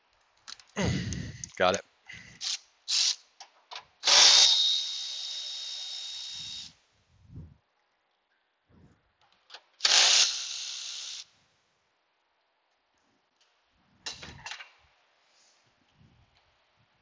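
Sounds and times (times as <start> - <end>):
power ratchet turning a bolt: 2.4 - 3.2, 4.0 - 6.7, 9.8 - 11.3.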